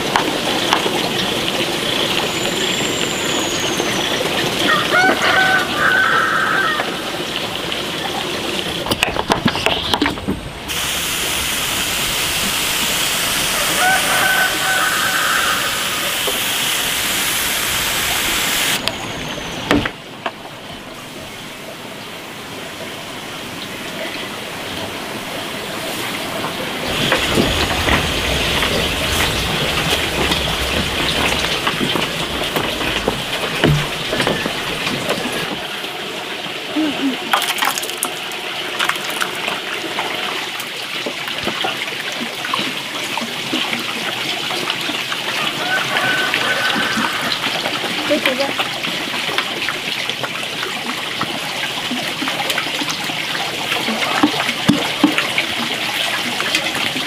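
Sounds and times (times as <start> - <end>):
garden sprayer hissing: 10.6 - 20.0, 26.8 - 35.6.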